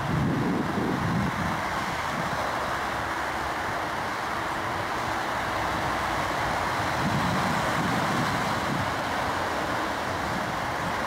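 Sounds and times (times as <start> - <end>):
jet airliner climbing: 0.0 - 11.0.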